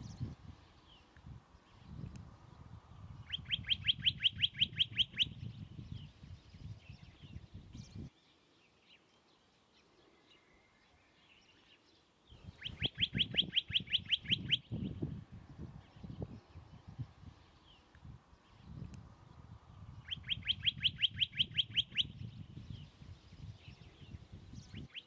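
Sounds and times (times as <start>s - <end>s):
bird trilling: 3.3s - 5.4s, 12.5s - 14.9s, 20.0s - 22.3s, 24.6s - 25.0s.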